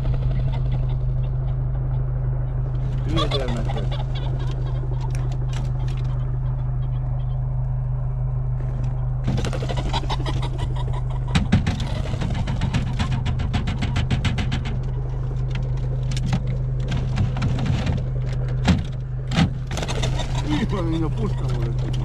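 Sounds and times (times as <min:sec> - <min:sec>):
vehicle engine idling: 0:00.0 - 0:22.0
rapid wing flapping: 0:09.2 - 0:20.8.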